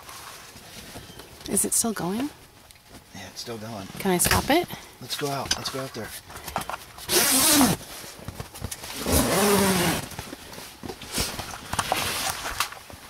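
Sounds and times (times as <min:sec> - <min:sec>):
zipper being pulled open: 0:07.1 - 0:07.8, 0:08.9 - 0:10.2.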